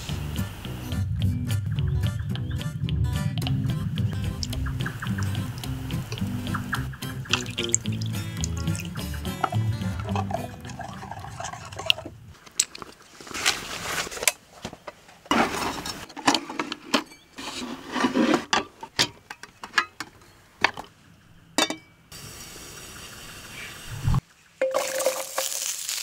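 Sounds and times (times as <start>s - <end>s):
rustling and scraping: 12.3s - 20.9s.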